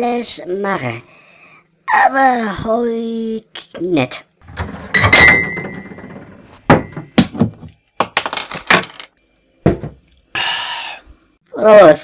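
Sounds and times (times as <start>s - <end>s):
glass bottles clinking: 4.8s - 6.2s.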